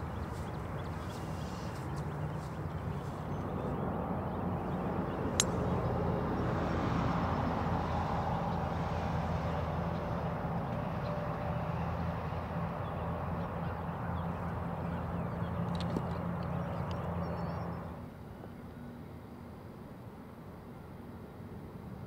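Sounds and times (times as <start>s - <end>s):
low outdoor rumble: 0.0s - 19.6s
golf club striking ball: 5.3s - 6.2s.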